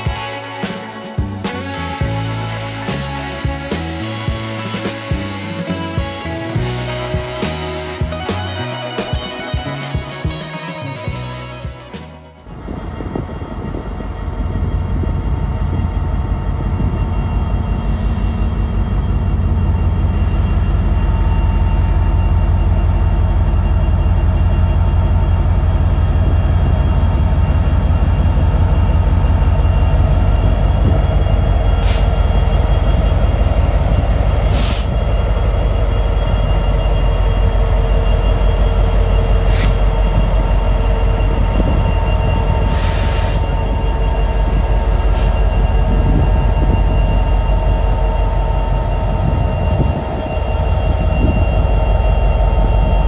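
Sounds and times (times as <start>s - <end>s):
high-pitched bursts: 0.0s - 12.5s
train wheels rumbling on rail: 0.0s - 53.0s.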